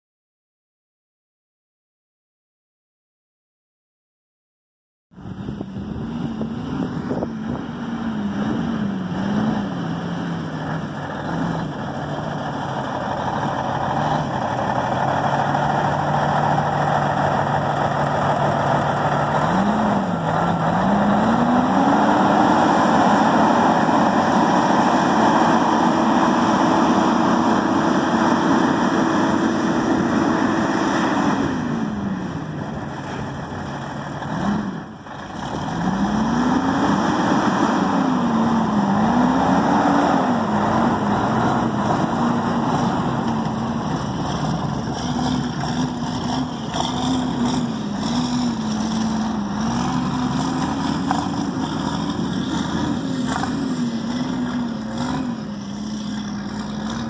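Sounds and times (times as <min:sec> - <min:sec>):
diesel truck engine revving and idling: 0:05.2 - 0:57.0.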